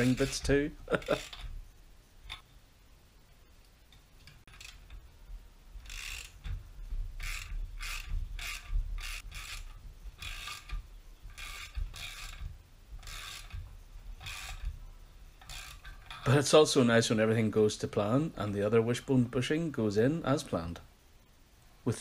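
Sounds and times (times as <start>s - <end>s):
ratchet wrench clicking: 0.0s - 1.5s, 4.3s - 5.0s, 5.8s - 6.6s, 7.2s - 14.8s, 15.4s - 16.2s.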